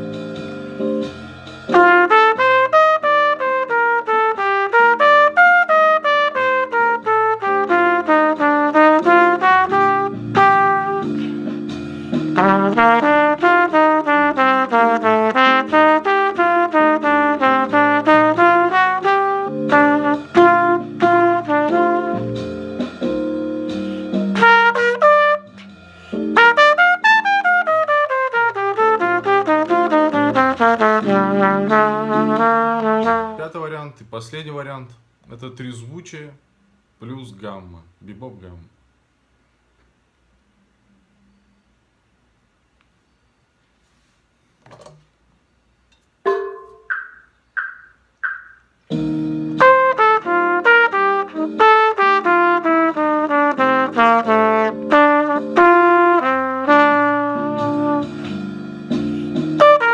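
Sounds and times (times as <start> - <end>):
jazz backing track chords: 0.0 - 34.0, 46.3 - 59.9
trumpet playing fast lines: 1.7 - 11.3, 12.4 - 22.4, 24.4 - 25.6, 26.4 - 33.6, 49.6 - 58.2, 59.6 - 59.9.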